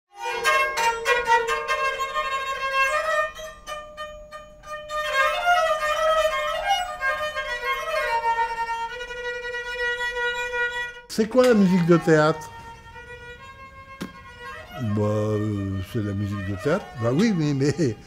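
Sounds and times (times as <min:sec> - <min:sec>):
plucked string notes: 0:11.2 - 0:18.0
bowed string melody over drone: 0:11.4 - 0:18.0.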